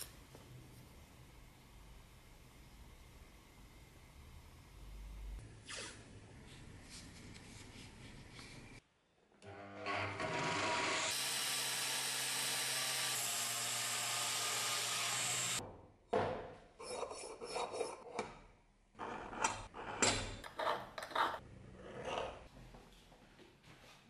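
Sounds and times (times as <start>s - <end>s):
belt grinder running: 10.1s - 15.6s.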